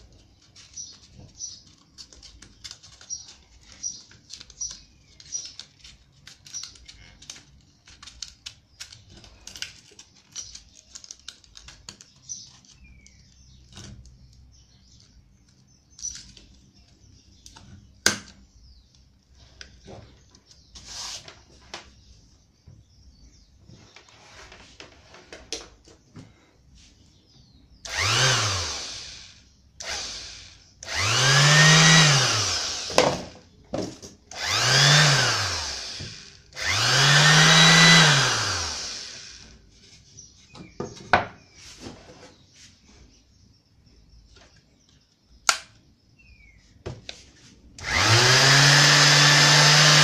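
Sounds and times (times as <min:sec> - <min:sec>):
paper rustling: 0:00.1 - 0:12.9
small plastic clicks: 0:01.7 - 0:16.6
sharp snap: 0:45.4 - 0:45.8.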